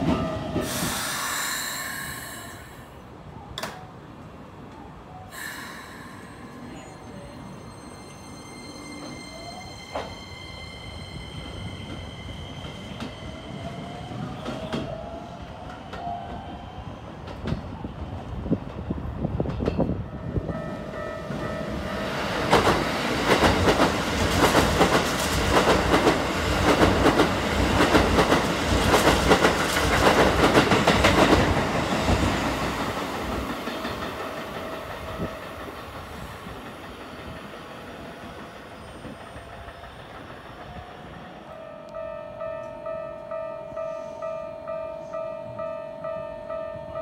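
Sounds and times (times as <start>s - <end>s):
train wheels clattering: 22.3s - 41.4s.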